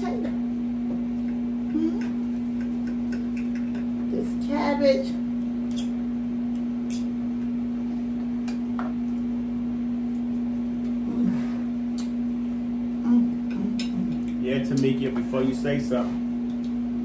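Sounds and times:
steady low hum: 0.0s - 17.0s
person eating: 10.1s - 14.4s.

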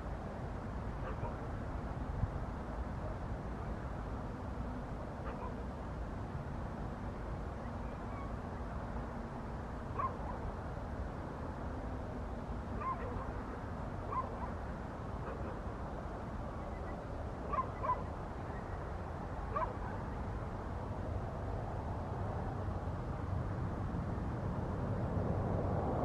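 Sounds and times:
distant dog barking: 1.0s - 1.5s, 5.2s - 5.6s, 9.9s - 10.5s, 12.8s - 14.6s, 15.2s - 15.7s, 17.4s - 18.1s, 19.5s - 20.1s.

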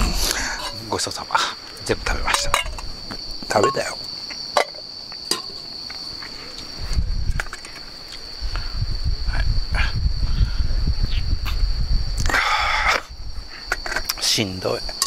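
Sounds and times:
crickets chirping: 0.0s - 15.0s
clay pot and lantern clinking: 0.4s - 1.1s, 2.2s - 2.9s, 3.5s - 4.0s, 4.6s - 5.7s.

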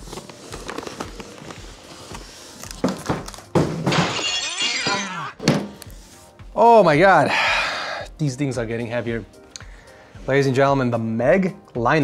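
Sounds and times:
cardboard rustling and scraping: 0.0s - 3.5s.

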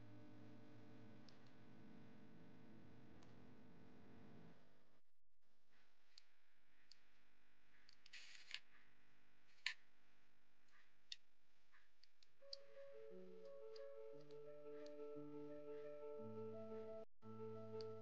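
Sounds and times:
faint clicks and scrapes: 5.6s - 9.9s.

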